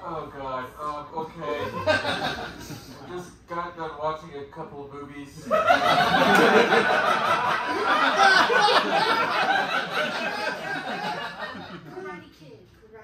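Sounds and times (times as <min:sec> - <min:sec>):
audience laughing loudly: 0:01.7 - 0:03.0, 0:05.5 - 0:11.9.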